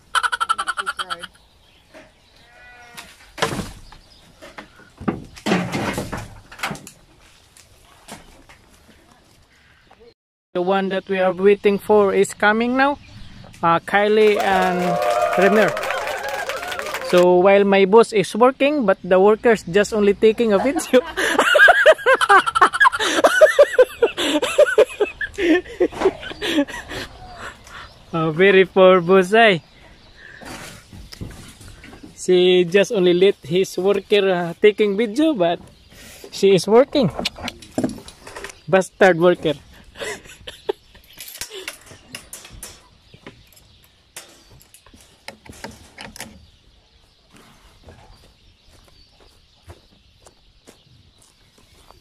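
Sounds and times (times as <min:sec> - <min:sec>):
chickens clucking: 0:00.0 - 0:02.2, 0:20.4 - 0:28.2.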